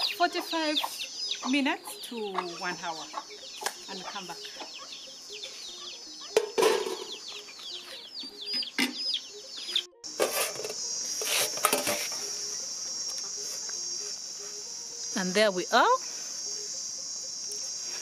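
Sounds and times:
hen clucking: 0:00.0 - 0:10.0
chicks peeping: 0:00.0 - 0:10.2
high insect trill: 0:00.0 - 0:18.0.

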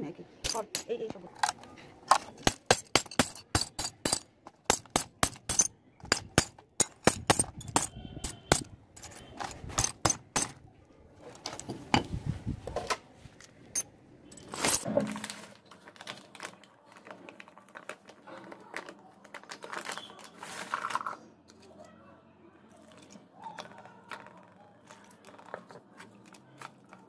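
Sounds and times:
glass shards clinking: 0:00.4 - 0:10.6, 0:13.7 - 0:15.3
glass cracking under metal bar: 0:00.5 - 0:10.6, 0:14.3 - 0:15.6.

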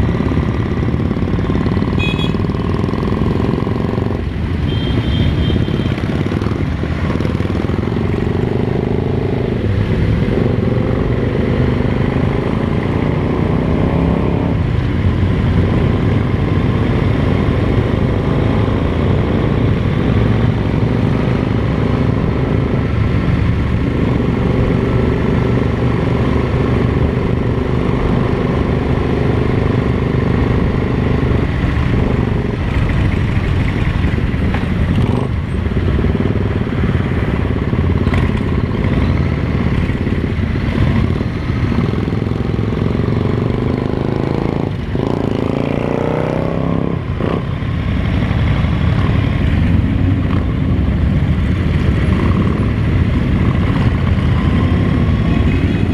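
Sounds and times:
motorcycle engine running: 0:00.0 - 0:09.7.

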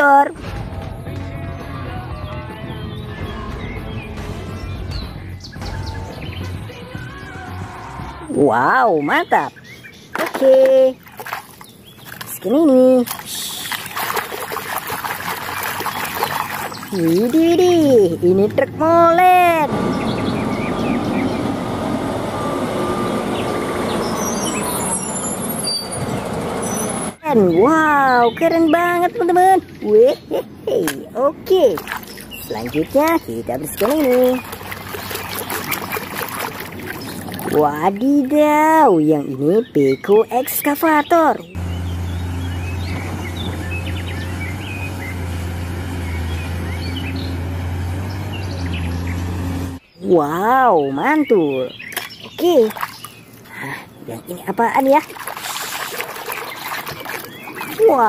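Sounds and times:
bird chirps: 0:15.1 - 0:18.7, 0:19.9 - 0:21.6, 0:23.3 - 0:30.8, 0:31.5 - 0:58.0
diesel truck engine running: 0:15.1 - 0:27.6, 0:41.5 - 0:49.9.

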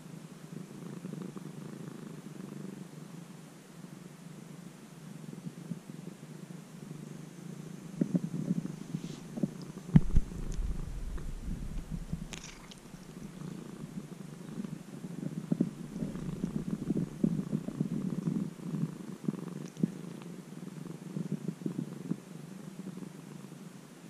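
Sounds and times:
cat purring: 0:00.0 - 0:23.9
brief thump: 0:10.0 - 0:12.8.

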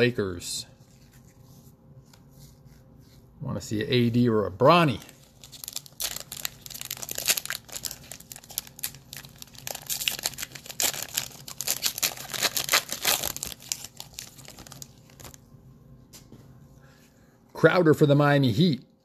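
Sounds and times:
wrapper tearing and crinkling: 0:04.8 - 0:15.4.

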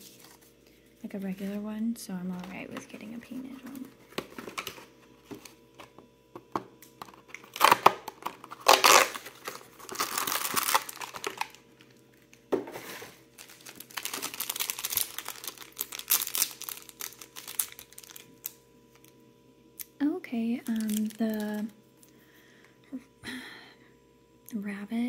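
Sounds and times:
toy packaging crinkling and tearing: 0:07.1 - 0:12.3, 0:13.3 - 0:19.1, 0:20.6 - 0:21.7.

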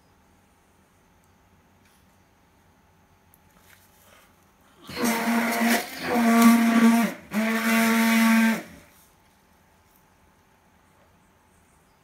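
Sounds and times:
man blowing his nose: 0:04.8 - 0:08.9.

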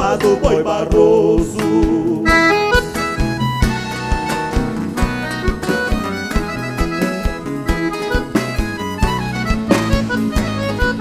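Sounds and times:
accordion: 0:00.0 - 0:11.0
acoustic guitars: 0:00.0 - 0:11.0
drums: 0:00.0 - 0:11.0
electric bass: 0:00.0 - 0:11.0
folk band playing: 0:00.0 - 0:11.0.

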